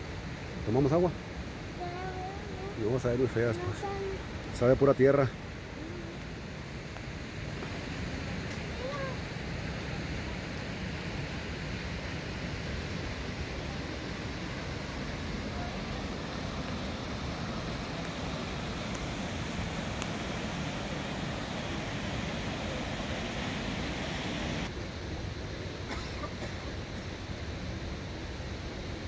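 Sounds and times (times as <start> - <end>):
river rushing: 0.0 - 29.0.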